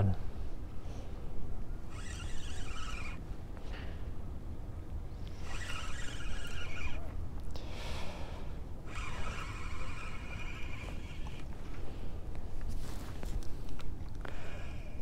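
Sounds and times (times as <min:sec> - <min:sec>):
spinning reel whirring: 0:01.8 - 0:03.3, 0:05.2 - 0:07.2, 0:08.8 - 0:11.6.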